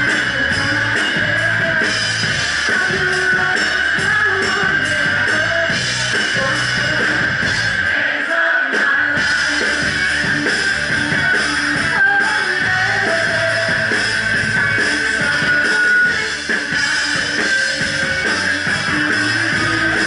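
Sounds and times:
bass guitar: 0.0 - 8.0, 8.8 - 20.0
drum kit: 0.0 - 20.0
electric guitar: 8.8 - 20.0.

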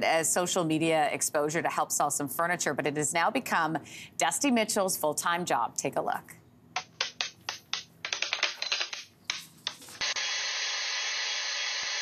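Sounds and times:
sharp clicks and knocks: 6.8 - 10.0.

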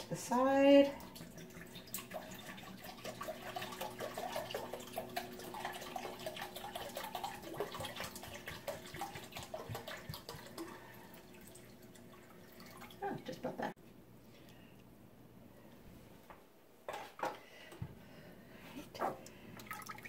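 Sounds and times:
liquid pouring into a cup: 1.0 - 13.0, 19.3 - 20.0.

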